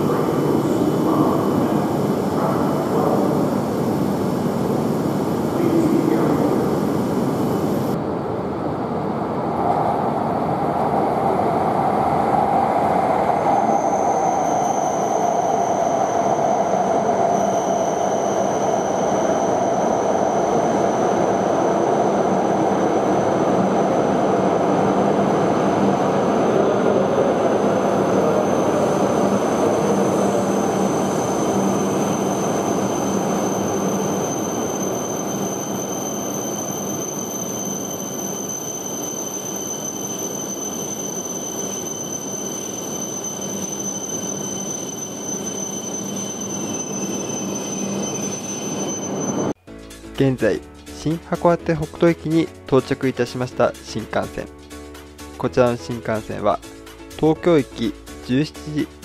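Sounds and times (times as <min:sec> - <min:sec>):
train braking with falling whine: 0:12.7 - 0:49.6
high thin squeal: 0:13.5 - 0:23.9, 0:28.4 - 0:49.6.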